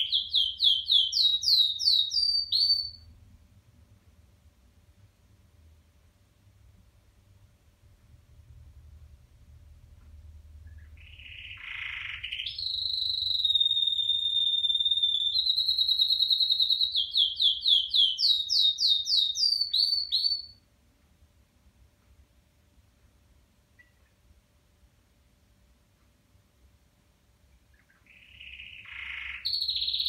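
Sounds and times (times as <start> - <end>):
canary singing: 0.0 - 3.2, 10.6 - 20.7, 23.7 - 24.3, 27.6 - 30.0.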